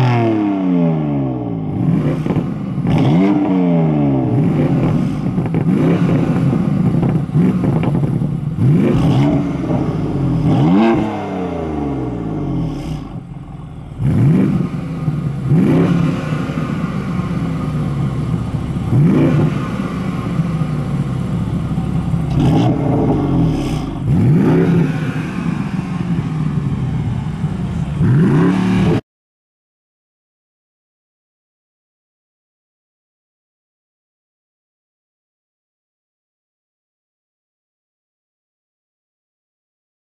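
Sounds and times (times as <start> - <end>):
car engine revving over idle: 0.0 - 29.0.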